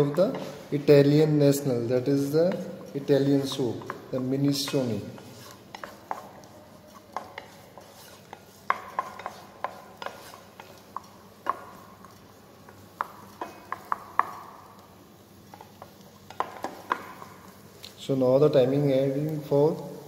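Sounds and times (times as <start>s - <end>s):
wooden spatula scraping pan: 0.0s - 14.6s.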